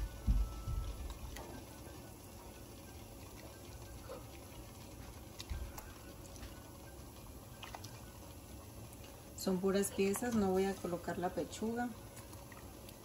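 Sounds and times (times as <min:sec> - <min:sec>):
water bubbling in a pot: 0:00.0 - 0:13.0
small splashes and clicks: 0:03.0 - 0:06.7, 0:07.4 - 0:09.2, 0:11.6 - 0:13.0.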